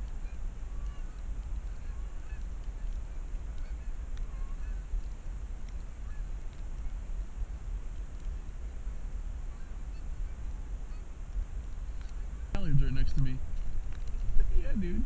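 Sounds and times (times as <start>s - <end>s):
geese honking: 0.0s - 13.1s
low rumble: 12.4s - 15.0s.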